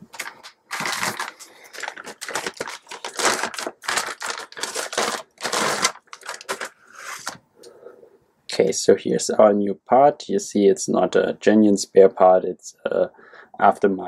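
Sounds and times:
plastic bag crinkling: 0.0 - 7.4.

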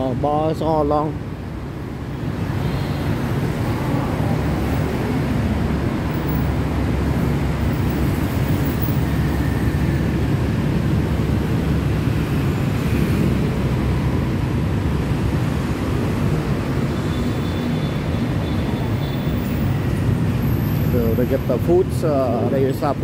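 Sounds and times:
city road traffic rumble: 0.0 - 23.0.

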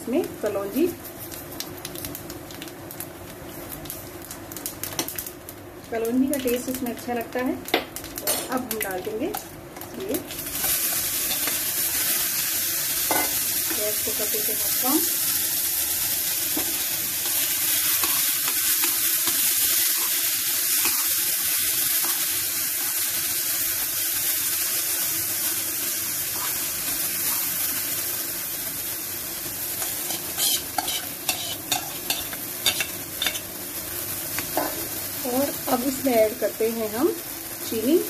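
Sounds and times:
food sizzling in oil: 0.0 - 38.0
spoon stirring in pan: 29.8 - 33.4.

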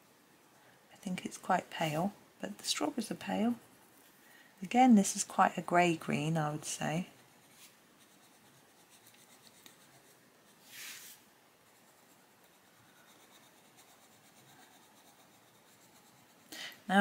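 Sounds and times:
soft hiss: 0.0 - 17.0
coloured pencil scratching on paper: 7.0 - 16.5.

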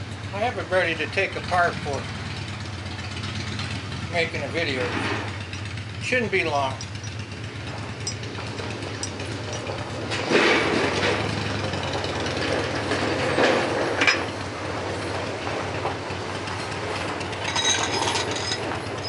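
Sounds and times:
vise screw rattling and scraping: 6.3 - 11.3, 16.5 - 19.0.

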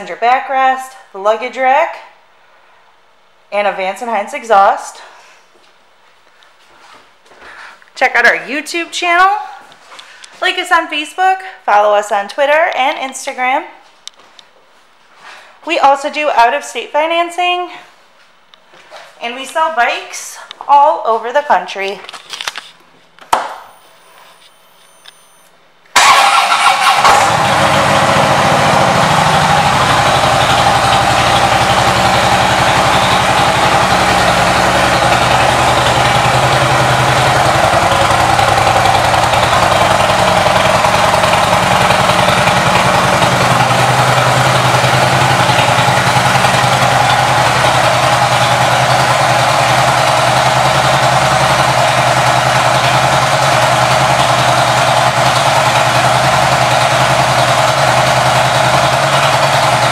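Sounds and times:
motorcycle engine idling: 26.0 - 59.9.

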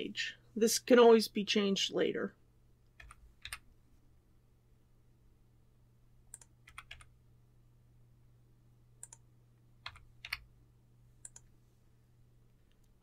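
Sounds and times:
low steady hum: 0.0 - 13.0
computer keyboard and mouse clicks: 3.0 - 3.7, 6.3 - 7.1, 9.0 - 9.2, 9.8 - 10.5, 11.2 - 11.5.

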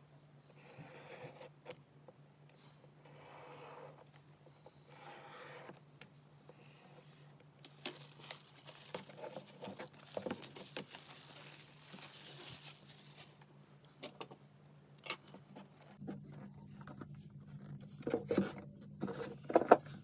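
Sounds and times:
plastic wrap crinkling: 7.6 - 13.5.

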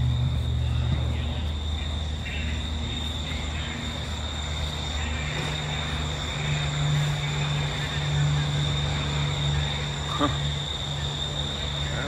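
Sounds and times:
faint high whine: 0.0 - 12.0
low engine drone: 0.0 - 12.0.

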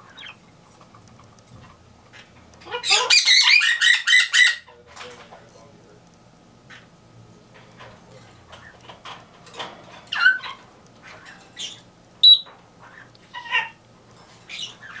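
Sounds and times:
birds calling and squawking: 0.0 - 0.4, 2.7 - 4.8, 10.0 - 15.0.

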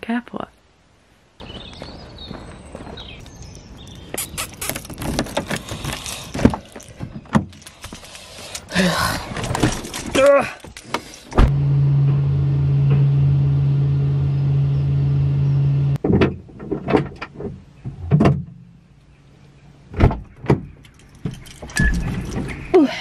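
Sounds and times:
electric window motor humming: 11.5 - 16.0.

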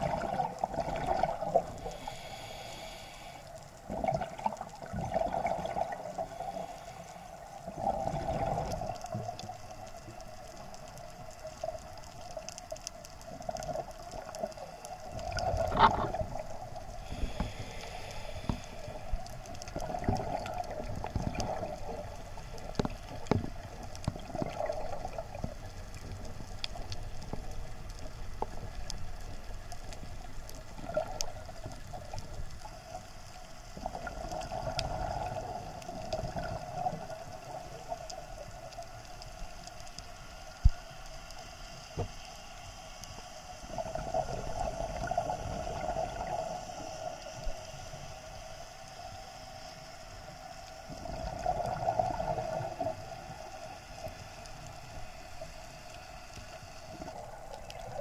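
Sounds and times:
underwater exhaled bubbles: 0.0 - 42.2, 43.5 - 49.3, 50.0 - 58.0.

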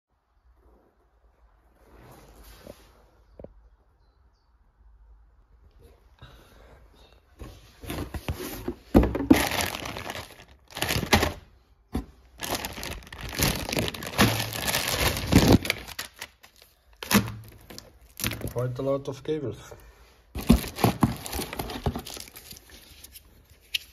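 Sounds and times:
plastic bag crinkling: 9.0 - 18.7, 20.3 - 23.3.

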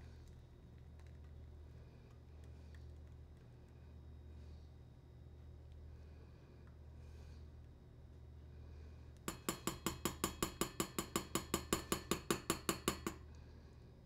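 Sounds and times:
strainer tapping on saucepan rim: 9.3 - 13.2.

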